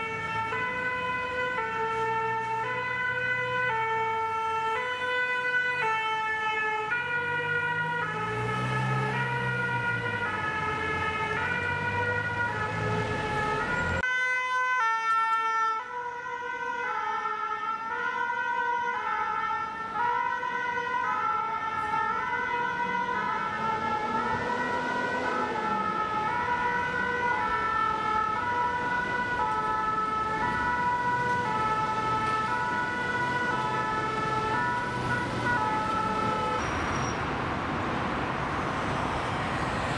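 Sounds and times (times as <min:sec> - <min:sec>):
two-tone siren: 0:00.0 - 0:37.3
vehicle engine passing: 0:07.1 - 0:14.0, 0:22.0 - 0:39.9.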